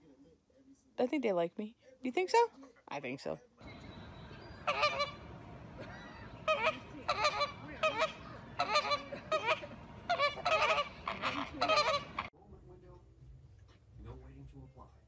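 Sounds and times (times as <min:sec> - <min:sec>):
flamingos honking: 0:03.6 - 0:12.3.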